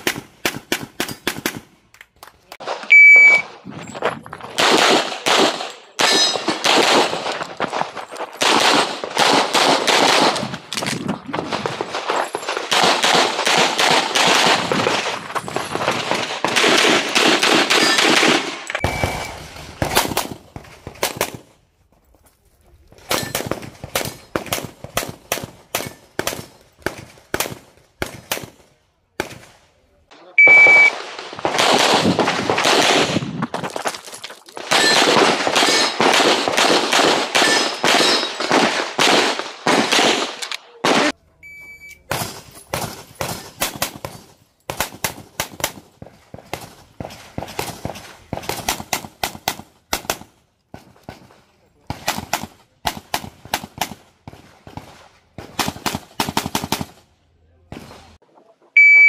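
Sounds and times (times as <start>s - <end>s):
rapid handgun fire: 0.0s - 1.7s, 4.6s - 7.4s, 8.4s - 10.6s, 11.4s - 15.2s, 15.9s - 21.4s, 30.6s - 33.3s, 34.7s - 41.2s, 42.1s - 51.3s, 51.9s - 57.0s
electronic timer beep: 2.9s - 3.5s, 18.7s - 19.3s, 30.4s - 30.9s, 41.4s - 42.0s, 58.8s - 59.0s.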